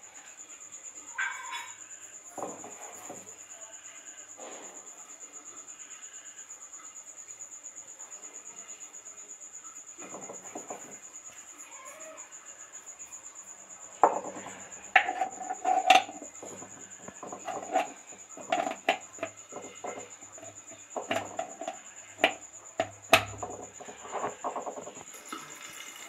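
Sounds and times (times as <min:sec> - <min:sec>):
glass jar and plastic lid clinking: 0:14.0 - 0:26.0.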